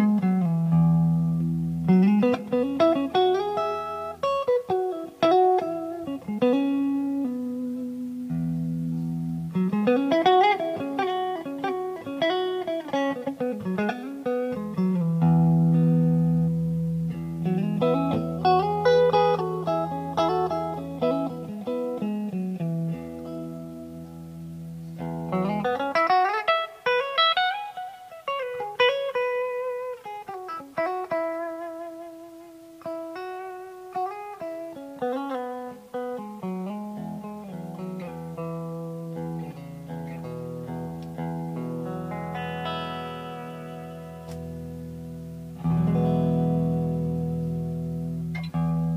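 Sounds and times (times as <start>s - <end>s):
amplified electric guitar melody: 0.0s - 48.9s.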